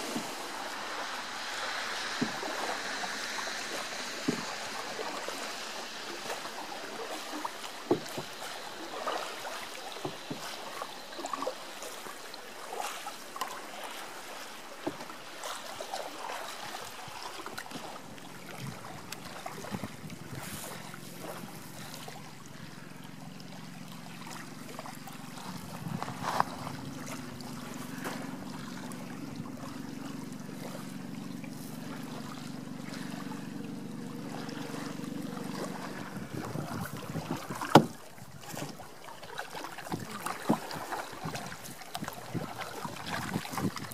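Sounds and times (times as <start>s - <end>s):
small waves lapping on pebbles: 0.0s - 43.9s
steady low hum: 17.8s - 38.2s.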